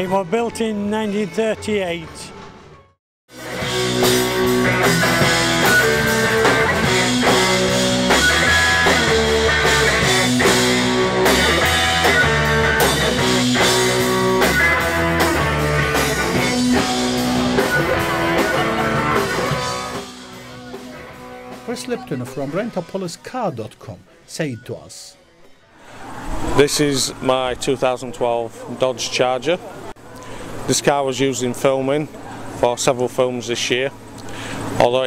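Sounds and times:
rock music with guitars and drums: 3.3 - 22.9.

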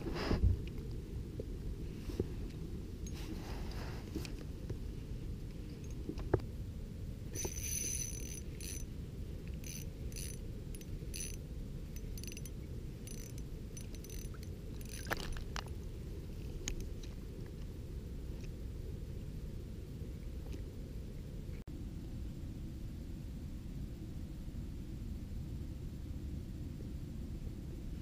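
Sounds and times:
fishing reel clicking and whirring: 7.4 - 8.9, 9.5 - 11.4, 12.0 - 15.2.

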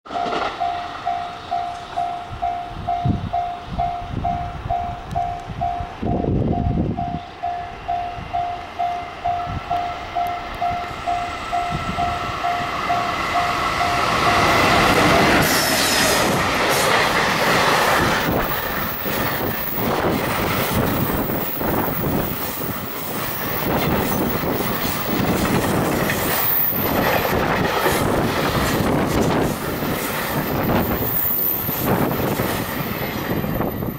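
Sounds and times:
train rumbling past: 0.1 - 33.9
wheels squealing: 10.9 - 33.9
train wheels clattering over rail joints: 13.8 - 33.8.

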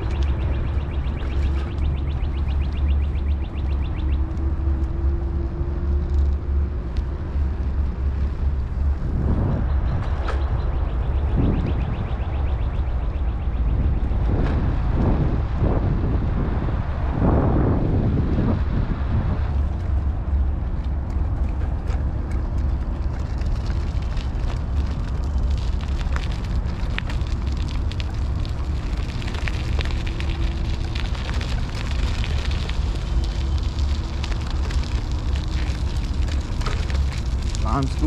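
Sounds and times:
scooter rattling over gravel: 0.0 - 9.0, 19.5 - 38.0
wind rumble on microphone: 0.0 - 38.0.

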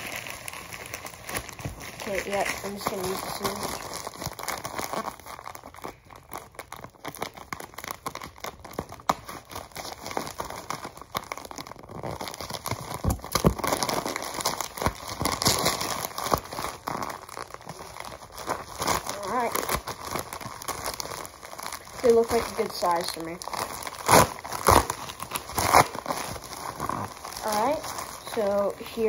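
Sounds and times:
plastic bag crinkling and tearing: 0.0 - 29.0.

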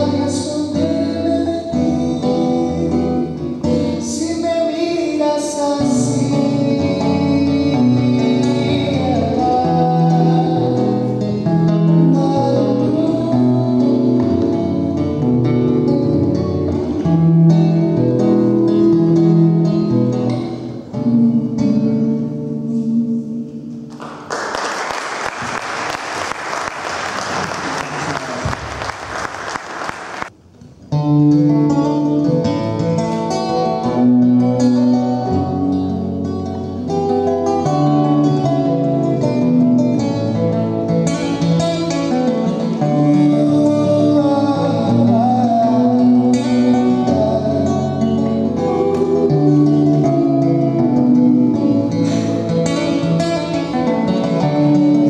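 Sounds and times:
man singing: 0.0 - 23.9, 31.7 - 55.0
acoustic guitar: 0.0 - 55.0
audience applauding: 23.9 - 30.3.

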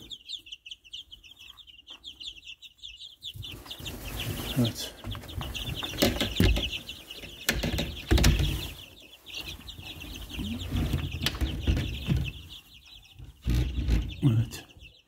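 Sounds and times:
chicks peeping: 0.0 - 15.0
knocks and thumps: 4.9 - 8.8, 9.8 - 14.6.

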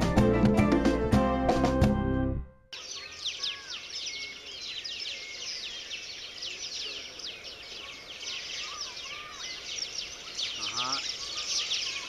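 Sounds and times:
small birds chirping: 2.7 - 12.0.

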